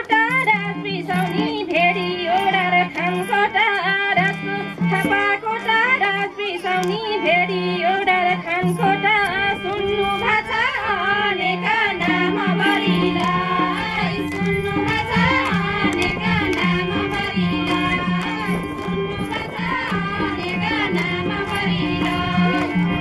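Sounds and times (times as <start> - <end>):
person singing folk song: 0.0 - 23.0
hand drum beat: 12.1 - 23.0.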